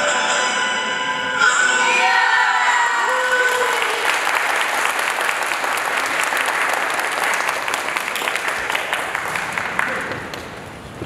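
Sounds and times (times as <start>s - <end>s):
music: 0.0s - 2.8s
audience applause: 2.9s - 10.9s.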